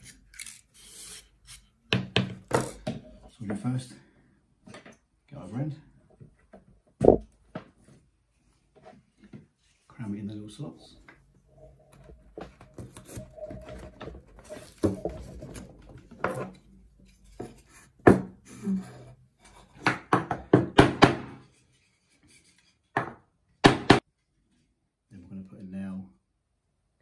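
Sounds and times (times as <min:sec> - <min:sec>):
sharp wooden knocks: 0:07.0 - 0:07.3, 0:23.0 - 0:24.0.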